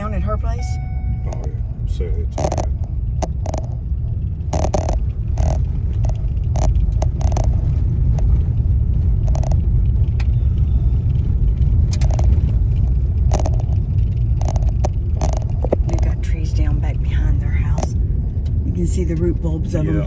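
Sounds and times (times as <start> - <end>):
vehicle engine and tyres rumbling: 0.0 - 20.0
sharp knocks and clicks: 2.3 - 8.6, 9.2 - 10.4, 11.6 - 16.2.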